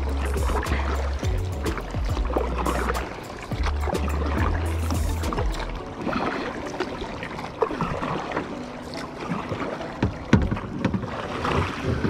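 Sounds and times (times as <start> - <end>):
water dripping: 0.0 - 6.3
paddle blades splashing: 0.0 - 12.0
paddle knocks: 0.1 - 6.5, 9.2 - 12.0.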